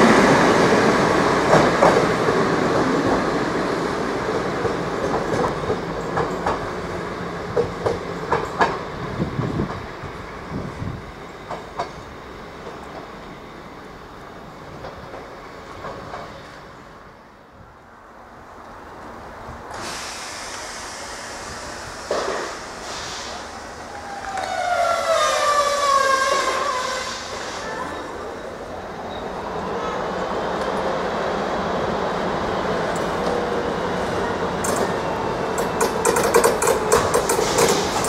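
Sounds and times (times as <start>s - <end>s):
train wheels clacking over rail joints: 34.6s - 38.0s.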